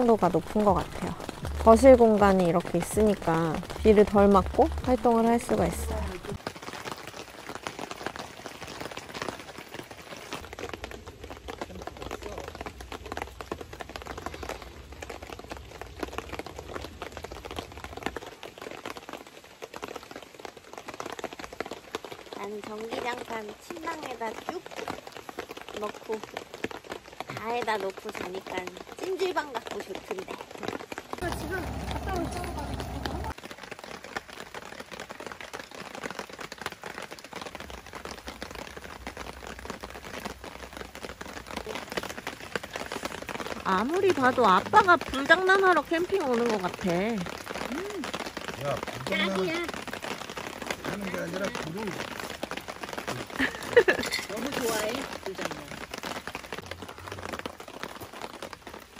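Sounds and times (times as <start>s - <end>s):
low rumble: 0.0s - 6.4s, 31.2s - 33.4s
rain pattering on fabric tarp: 0.0s - 58.9s
wood fire crackling: 0.0s - 58.9s.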